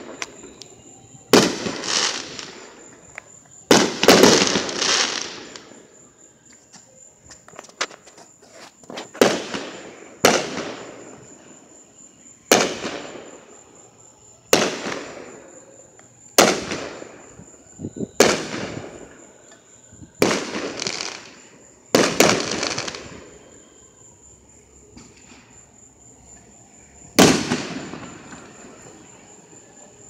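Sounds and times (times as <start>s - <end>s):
fireworks bangs with crackle: 0.0s - 5.8s, 8.8s - 11.4s, 12.5s - 13.6s, 14.5s - 15.6s, 16.4s - 19.2s, 20.1s - 23.3s, 27.2s - 29.1s.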